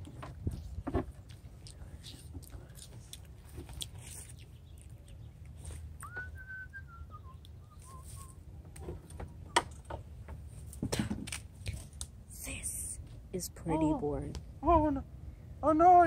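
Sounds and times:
person whistling: 0:06.0 - 0:08.4.

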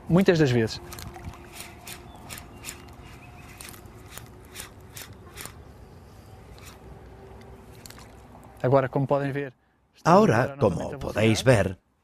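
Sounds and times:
fishing reel clicking: 0:00.9 - 0:05.6.

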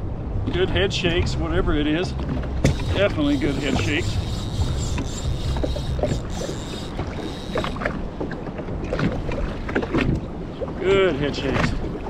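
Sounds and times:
water lapping against hull: 0:02.2 - 0:12.0
short clicks and knocks: 0:02.7 - 0:07.9.

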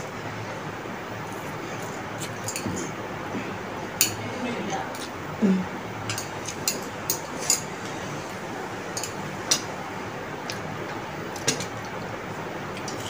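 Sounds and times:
metal chopsticks clicking on plates: 0:09.0 - 0:09.7.

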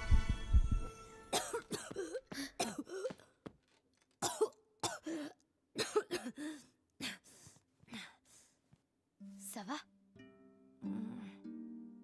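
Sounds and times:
person coughing: 0:01.3 - 0:03.2, 0:04.2 - 0:06.6.

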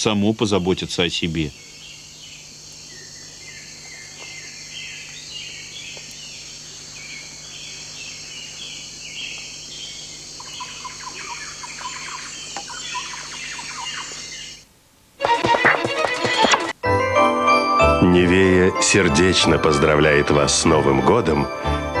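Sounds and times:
insects chirring: 0:00.0 - 0:16.8
birds chirping: 0:00.2 - 0:14.6
lower chirping: 0:01.3 - 0:14.6.

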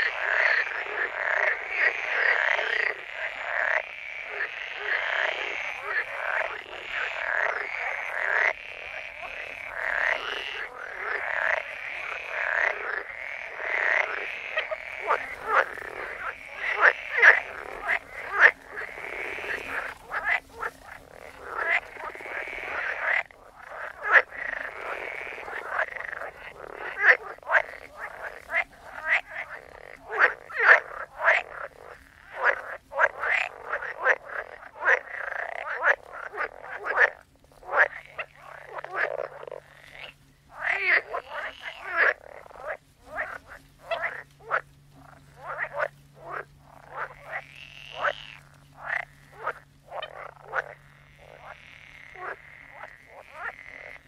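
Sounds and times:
frogs croaking: 0:00.0 - 0:54.0.

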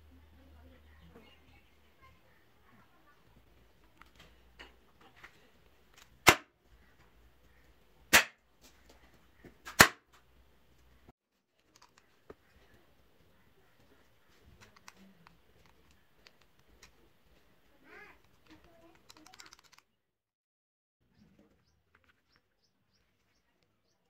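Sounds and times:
faint small clicks: 0:18.2 - 0:19.8.

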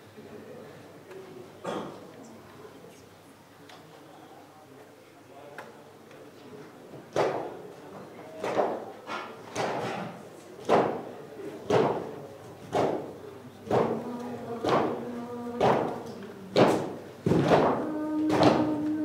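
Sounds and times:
long held sung tones: 0:13.8 - 0:16.4, 0:17.6 - 0:19.0.

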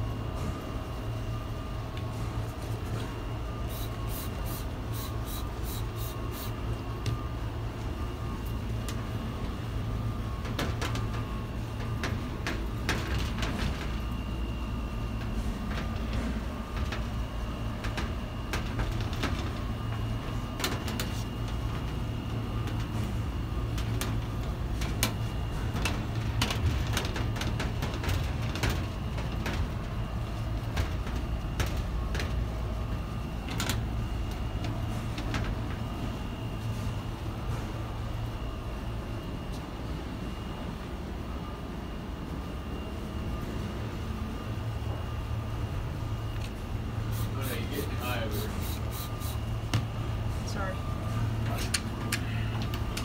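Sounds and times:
steady low hum: 0:00.0 - 0:53.0
spray bottle hissing sprays: 0:03.7 - 0:06.5, 0:47.1 - 0:47.4, 0:48.3 - 0:49.4.

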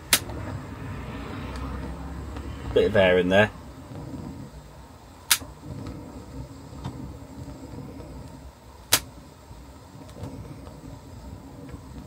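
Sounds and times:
gas burner flame sputtering: 0:00.0 - 0:12.0
gas burner popping: 0:00.0 - 0:12.0.

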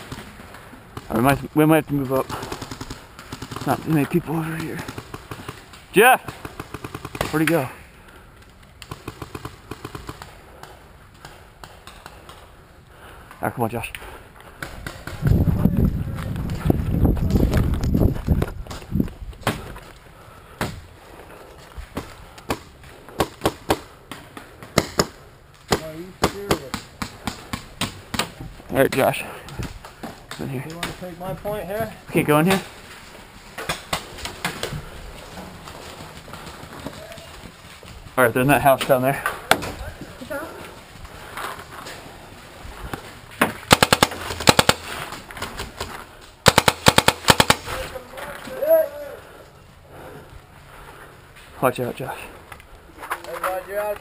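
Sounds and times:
paintball marker firing volleys: 0:02.0 - 0:07.6, 0:08.8 - 0:12.4, 0:22.0 - 0:28.4, 0:43.4 - 0:48.0
paintball markers firing: 0:08.8 - 0:12.4, 0:43.4 - 0:47.9.

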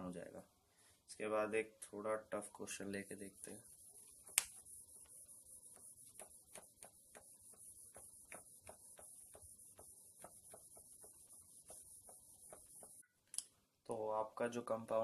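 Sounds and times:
rubbing strokes on whiteboard: 0:02.7 - 0:13.0.

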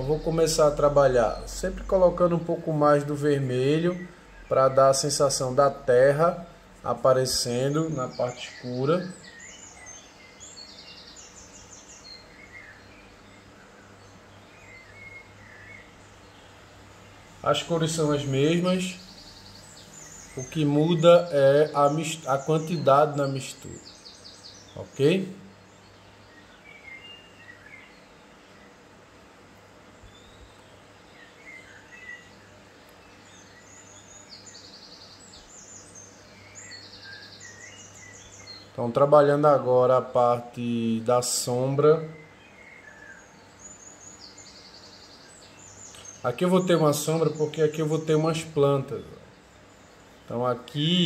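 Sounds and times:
birds chirping: 0:00.0 - 0:51.0
steady low hum: 0:00.0 - 0:51.0.

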